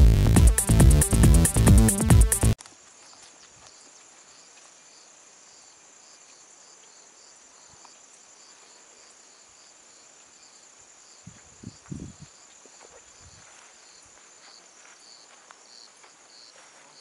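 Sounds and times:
insects chirping: 0:00.4 - 0:17.0
soft footsteps in grass: 0:02.6 - 0:07.0, 0:11.2 - 0:17.0.

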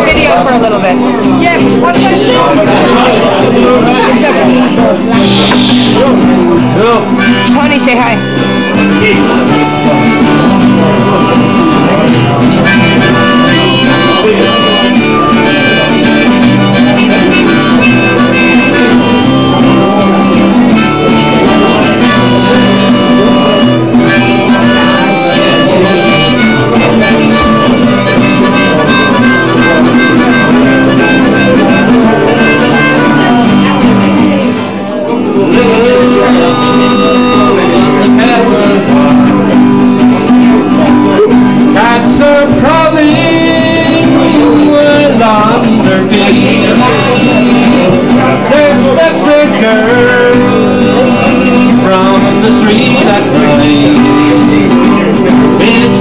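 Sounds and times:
guitar: 0:00.0 - 0:56.0
harmonica: 0:00.0 - 0:56.0.

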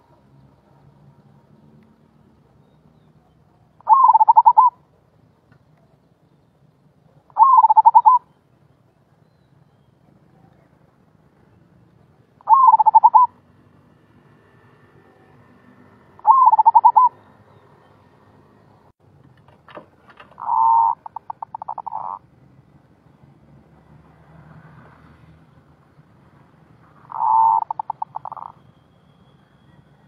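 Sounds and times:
dove cooing: 0:03.6 - 0:04.8, 0:07.3 - 0:08.3, 0:12.4 - 0:13.4, 0:16.2 - 0:17.2, 0:20.3 - 0:22.3, 0:27.1 - 0:28.6.

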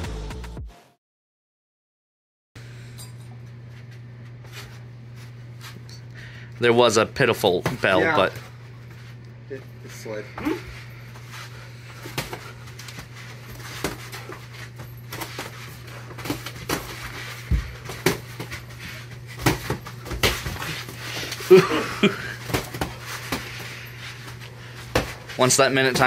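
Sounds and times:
steady low hum: 0:02.6 - 0:26.0
feet moving on foam mats: 0:03.7 - 0:05.8, 0:09.8 - 0:26.0
boxing gloves landing: 0:13.5 - 0:18.6, 0:19.3 - 0:21.4, 0:22.0 - 0:23.6, 0:24.8 - 0:26.0.

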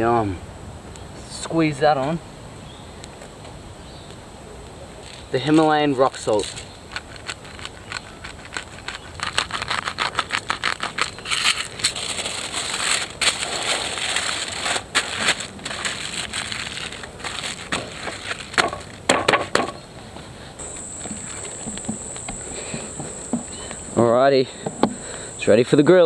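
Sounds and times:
aluminium foil crinkling: 0:05.0 - 0:19.2.

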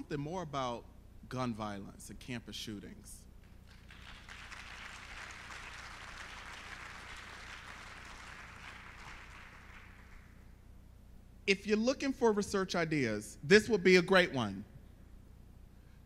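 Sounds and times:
audience applauding: 0:03.7 - 0:10.4.

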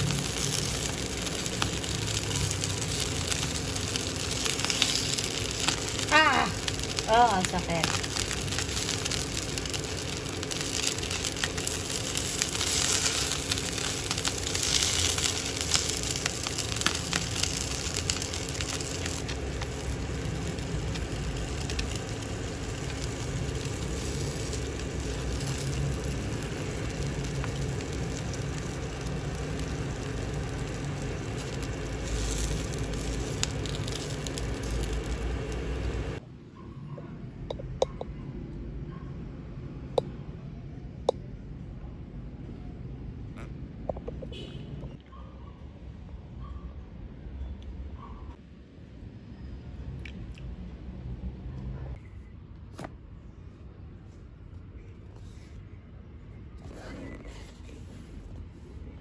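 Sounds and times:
dumplings sizzling in oil: 0:00.0 - 0:36.2.

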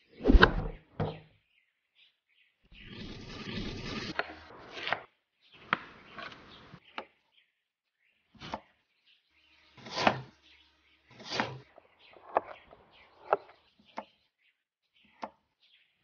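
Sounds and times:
blade rasping through rind: 0:02.8 - 0:05.1, 0:11.1 - 0:11.7
blade chopping on wooden board: 0:09.8 - 0:10.4, 0:11.1 - 0:12.6.

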